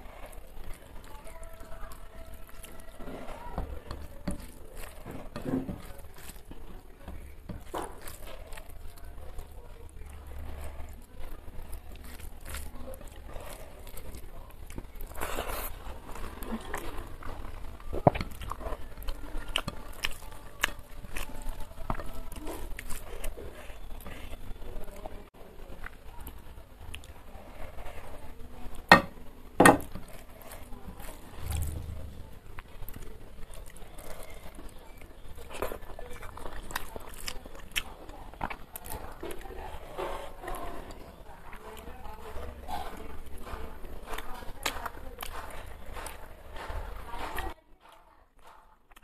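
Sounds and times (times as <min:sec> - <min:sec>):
person chewing: 0:00.0 - 0:25.2, 0:25.8 - 0:49.0
fingers mixing rice on plate: 0:00.0 - 0:49.0
fingers squelching food: 0:32.6 - 0:49.0.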